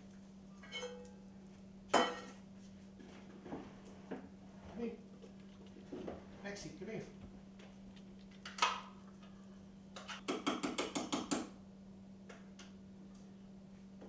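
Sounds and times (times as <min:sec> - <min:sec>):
low steady hum: 0:00.0 - 0:10.2.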